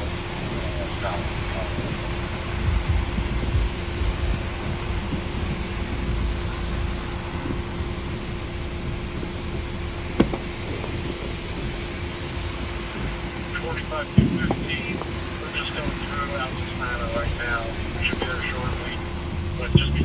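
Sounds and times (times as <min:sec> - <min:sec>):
heavy rain: 0:00.0 - 0:20.0
low rumble: 0:00.0 - 0:20.0
traffic on wet road: 0:00.0 - 0:20.0.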